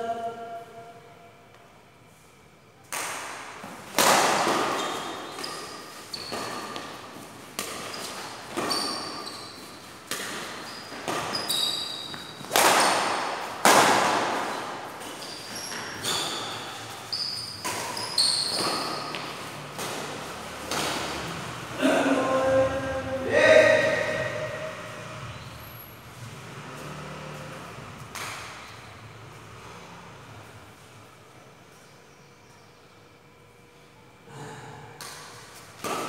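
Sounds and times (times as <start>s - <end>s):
shuttlecock hit by rackets: 2.9s - 8.8s, 10.0s - 11.5s, 12.1s - 15.2s, 17.5s - 21.3s, 28.0s - 28.8s, 35.0s - 36.0s
shoe squeaks: 4.6s - 7.1s, 7.7s - 13.2s, 14.4s - 19.6s.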